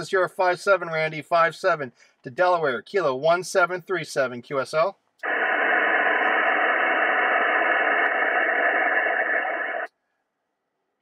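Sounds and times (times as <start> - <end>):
radio band noise hiss: 5.2 - 9.9.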